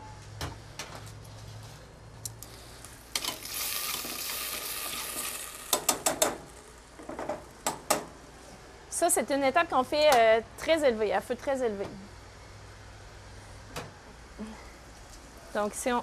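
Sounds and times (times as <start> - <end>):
wine sizzling in a saucepan: 3.2 - 7.0.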